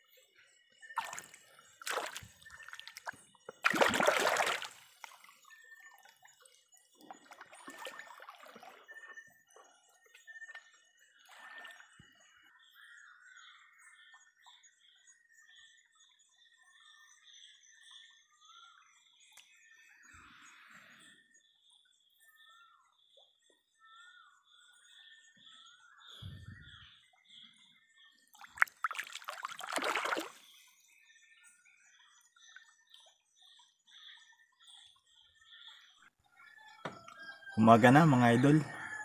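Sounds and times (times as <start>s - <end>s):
river water splashing: 1.0s - 5.4s, 7.0s - 8.9s, 28.4s - 30.5s.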